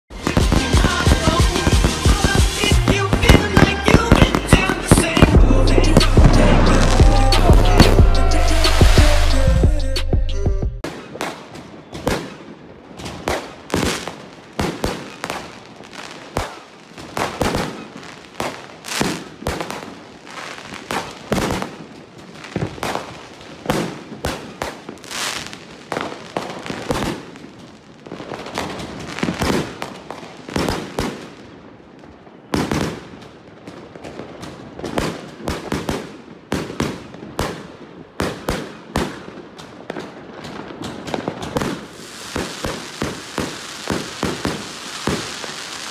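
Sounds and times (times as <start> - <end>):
firework bangs: 0.1 - 9.5, 10.8 - 45.9
firework crackle: 0.1 - 9.8, 10.8 - 45.9.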